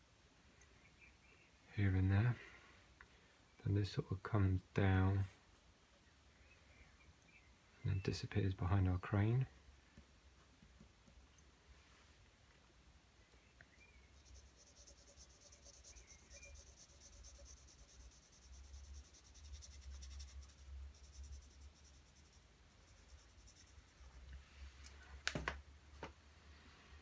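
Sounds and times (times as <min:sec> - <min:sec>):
pencil scratching on paper: 0:14.2 - 0:24.2.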